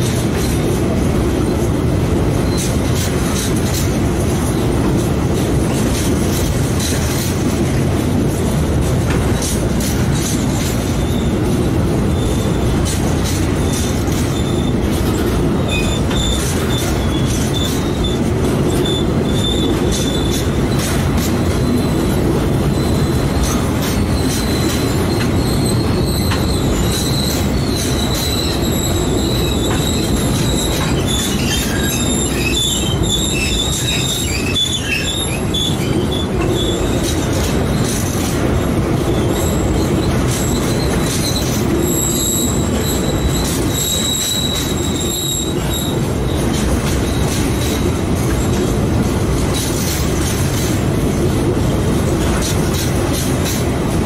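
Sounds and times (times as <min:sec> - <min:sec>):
rumble of steel train wheels: 0:00.0 - 0:54.0
high-pitched wheel squeal: 0:10.9 - 0:11.5, 0:12.1 - 0:12.7, 0:13.6 - 0:37.9, 0:39.1 - 0:47.8.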